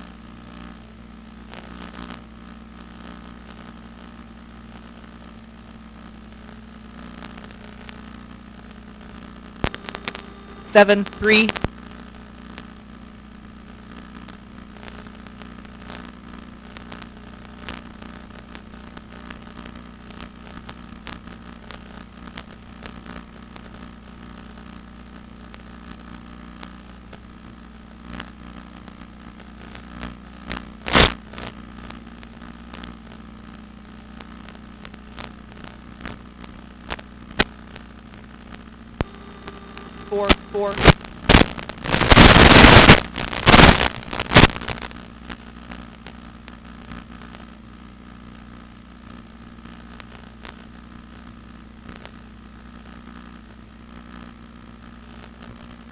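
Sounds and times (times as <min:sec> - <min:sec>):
static crackles and clicks: 0:09.6 - 0:11.7, 0:39.0 - 0:45.4.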